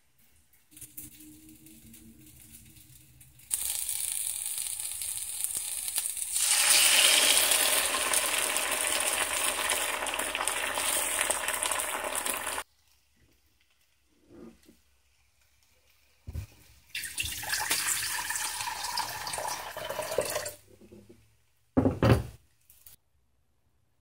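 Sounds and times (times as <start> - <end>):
vegetables and egg sizzling in a pan: 0.8 - 19.8.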